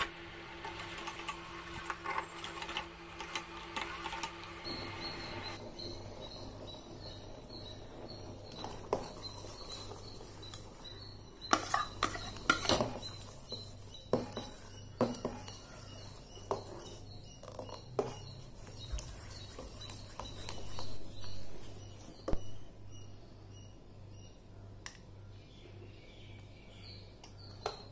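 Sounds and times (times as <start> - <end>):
ladle scraping a saucepan: 11.4 - 21.0.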